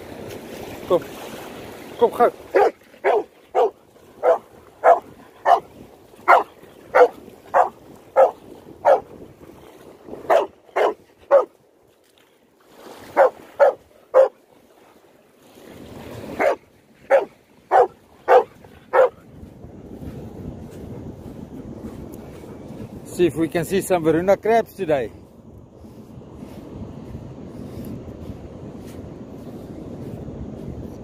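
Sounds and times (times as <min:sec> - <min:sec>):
dog barking: 0:02.5 - 0:09.1, 0:10.3 - 0:11.5, 0:13.1 - 0:14.4, 0:16.4 - 0:19.2.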